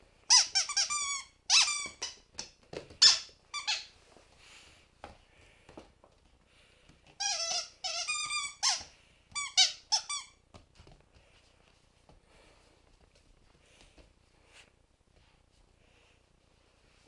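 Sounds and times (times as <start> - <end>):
squeaky toy squeaking: 0.3 - 2.2, 3.0 - 3.9, 7.2 - 10.4.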